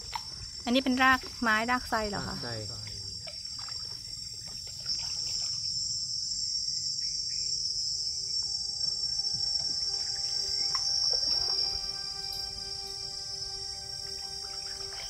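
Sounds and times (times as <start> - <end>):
high-pitched insect chorus: 0.0 - 15.0
soft background music: 8.2 - 15.0.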